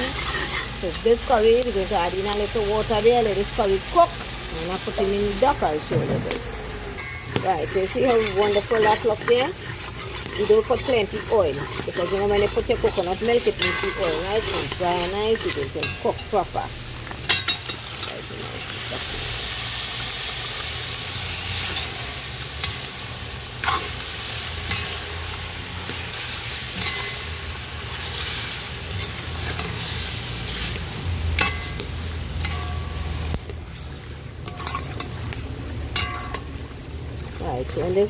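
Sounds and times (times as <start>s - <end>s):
metal spatula scraping a pot: 0.0s - 0.9s, 7.0s - 16.7s, 26.2s - 30.8s, 34.4s - 35.2s
meat sizzling in a pot: 0.0s - 38.0s.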